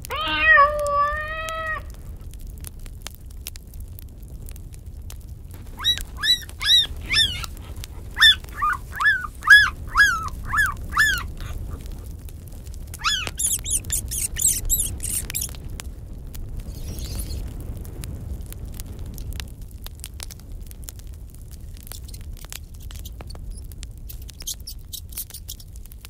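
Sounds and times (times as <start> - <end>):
high-pitched puppy squeals: 0.0 - 2.0, 5.6 - 12.1, 13.0 - 15.6, 16.7 - 17.4, 22.8 - 25.7
puppies whining: 0.1 - 1.8, 5.6 - 12.1, 12.9 - 15.6.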